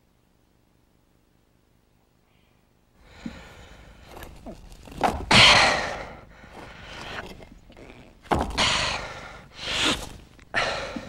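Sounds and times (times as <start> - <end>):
man panting heavily: 3.0 - 4.1, 5.3 - 7.2, 8.4 - 11.0.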